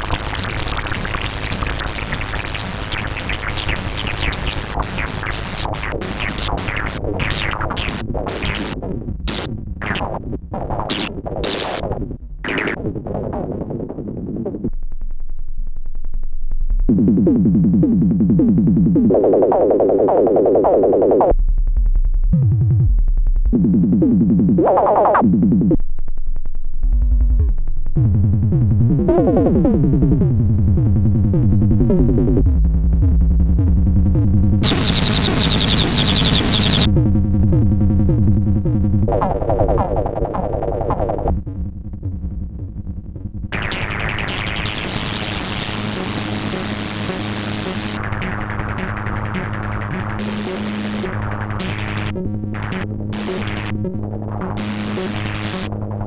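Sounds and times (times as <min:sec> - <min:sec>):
synthesizer plucky notes: 0:00.0 - 0:10.0, 0:34.6 - 0:36.9, 0:43.4 - 0:56.0
synthesizer bass line: 0:00.0 - 0:14.7, 0:16.7 - 0:25.8, 0:26.7 - 0:56.0.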